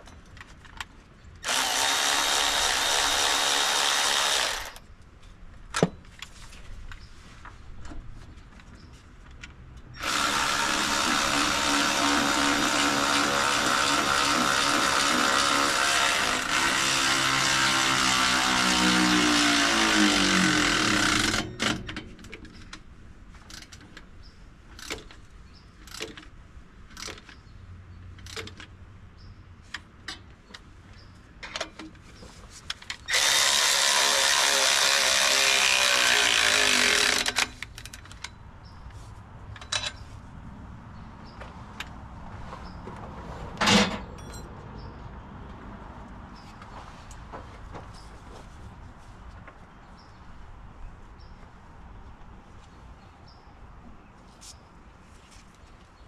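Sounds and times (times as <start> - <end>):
handheld power tool whining: 1.4 - 4.8, 10.0 - 22.0, 33.1 - 37.7
tool and metal clanking: 39.5 - 40.0, 43.6 - 44.5.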